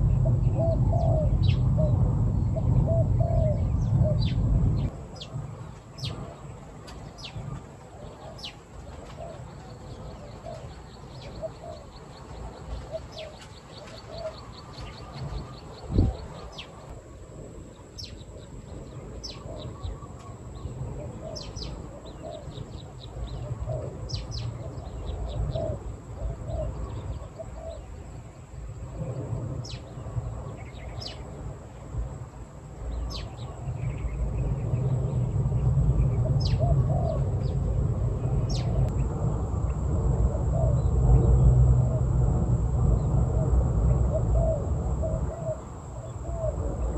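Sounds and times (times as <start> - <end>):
doves cooing: 0.0 - 4.4, 6.0 - 16.9, 19.3 - 28.1, 36.0 - 46.9
small birds chirping: 0.0 - 17.0, 17.7 - 39.3.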